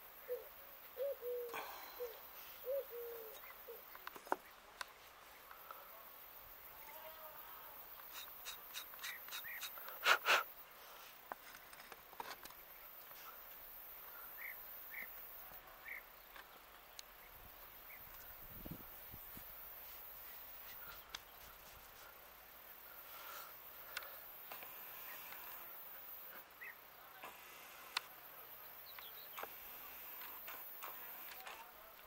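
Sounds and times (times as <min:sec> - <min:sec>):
birds chirping: 0:00.0 - 0:05.8, 0:07.8 - 0:10.0, 0:12.7 - 0:19.3, 0:28.3 - 0:31.6.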